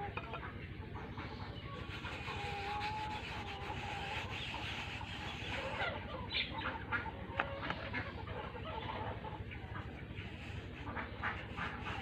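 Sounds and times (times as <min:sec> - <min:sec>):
hens clucking: 0:00.0 - 0:12.0
rolling pin rubbing dough: 0:01.8 - 0:06.1, 0:09.7 - 0:12.0.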